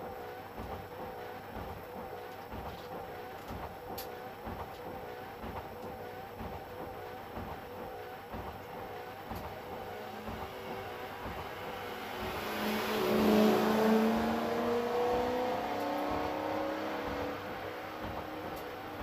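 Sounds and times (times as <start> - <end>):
race car engine revving: 10.1 - 19.0.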